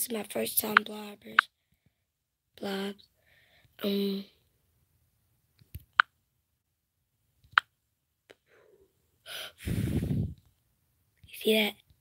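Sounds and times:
breath blown onto microphone: 9.6s - 10.4s.

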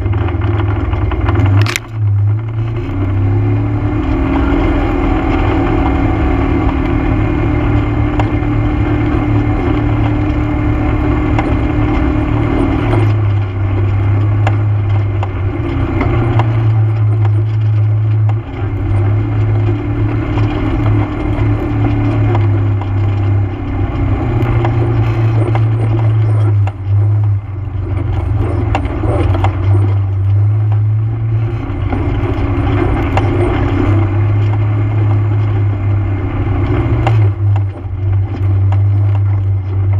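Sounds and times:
atv engine running: 0.0s - 39.9s.

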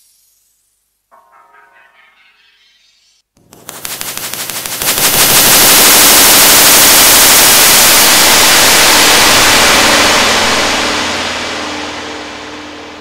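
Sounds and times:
harsh granular synth noise: 3.9s - 13.0s.

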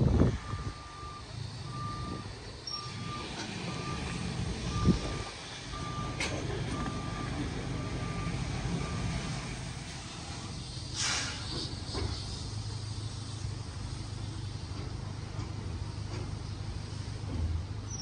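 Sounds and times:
low engine rumble: 0.0s - 18.0s
reversing alarm beeping: 0.4s - 9.3s.

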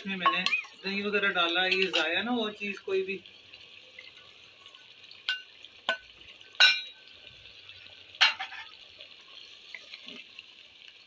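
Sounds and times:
metal spoon clinking on cookware: 0.0s - 2.3s, 5.3s - 7.0s, 8.2s - 8.8s
beef sizzling: 0.0s - 11.0s.

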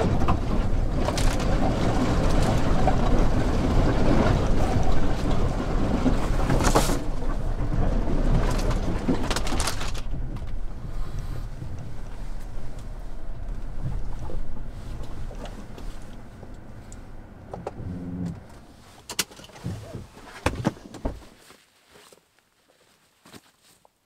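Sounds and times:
car rolling on dirt track: 0.0s - 21.4s
car door opened and shut: 17.4s - 21.4s.

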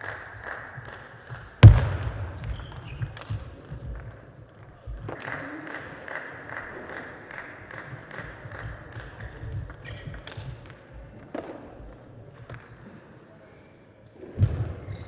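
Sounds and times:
loud thump with low boom: 1.6s - 2.8s.

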